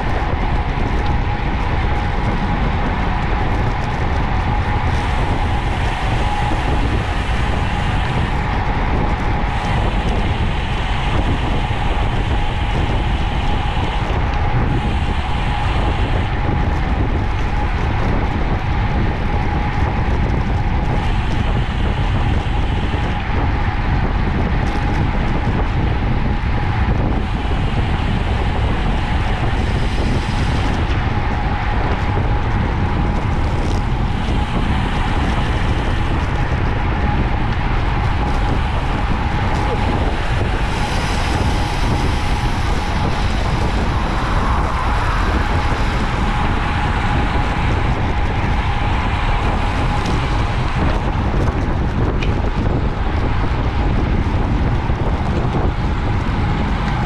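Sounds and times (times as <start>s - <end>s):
steady high hum: 0.0s - 57.0s
tyre and road noise: 0.0s - 57.0s
wind rush on microphone: 0.0s - 57.0s.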